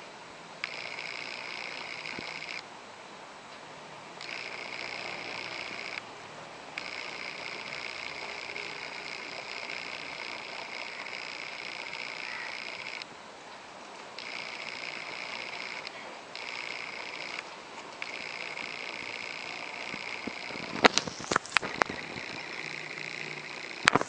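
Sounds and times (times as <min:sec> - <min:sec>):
animal calling in pulsing trills: 0:06.8 - 0:13.1, 0:14.2 - 0:17.4.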